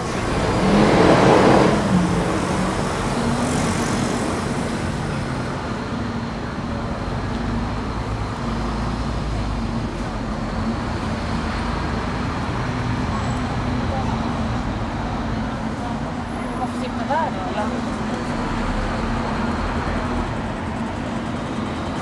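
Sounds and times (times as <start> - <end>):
vehicle passing close by: 0.0 - 5.4
rumble of traffic: 0.0 - 22.0.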